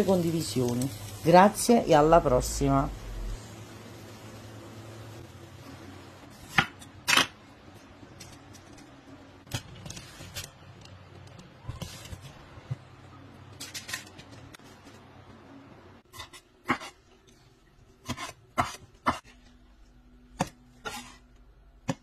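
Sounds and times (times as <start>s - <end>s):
low steady hum: 0.0s - 11.7s
knife slicing eggplant: 18.0s - 19.3s.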